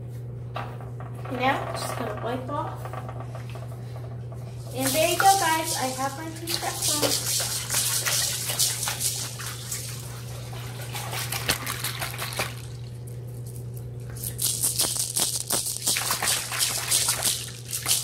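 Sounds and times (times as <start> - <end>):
water dripping and trickling: 4.7 - 12.8.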